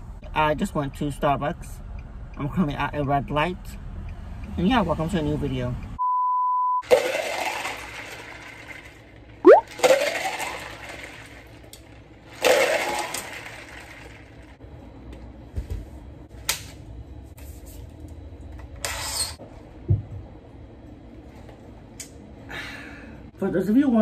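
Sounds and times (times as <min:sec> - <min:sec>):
iced drink pouring and splashing: 0:06.8 - 0:08.8, 0:09.5 - 0:11.4.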